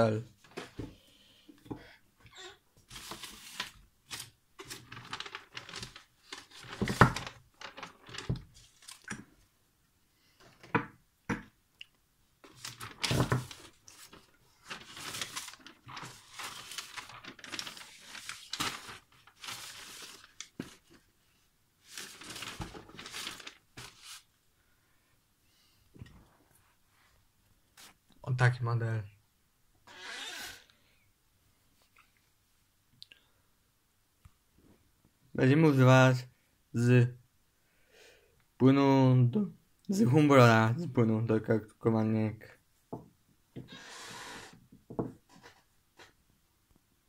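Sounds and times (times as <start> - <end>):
paper rustling and crinkling: 2.9 - 9.2, 12.4 - 21.1, 21.8 - 24.3.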